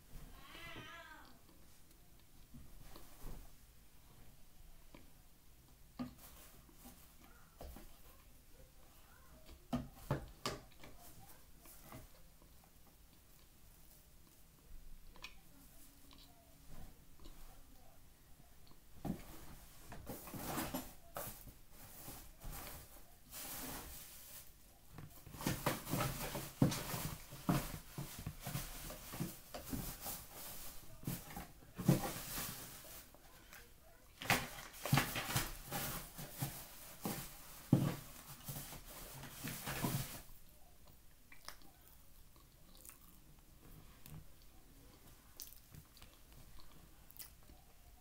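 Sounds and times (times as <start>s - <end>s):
chewing crunchy lumps: 42.3s - 43.2s.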